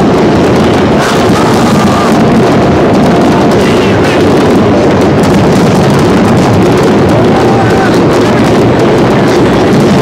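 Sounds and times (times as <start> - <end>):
fireworks bangs and crackling: 0.0 - 10.0
fireworks whistling: 0.0 - 10.0.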